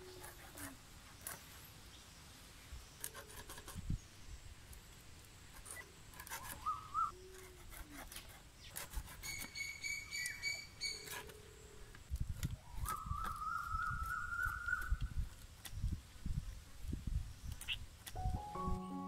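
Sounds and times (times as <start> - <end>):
birds calling: 5.6 - 11.9.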